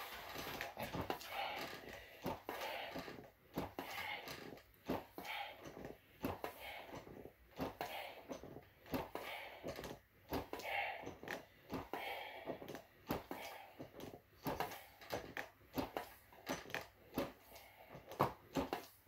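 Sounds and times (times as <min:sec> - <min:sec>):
hard panting breaths: 0:00.0 - 0:19.0
rowing machine knocks: 0:18.0 - 0:19.0.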